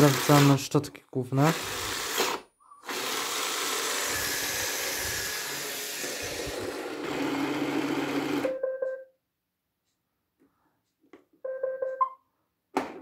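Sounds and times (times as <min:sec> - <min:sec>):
brush motor whirring: 0:00.0 - 0:00.6, 0:01.4 - 0:08.4.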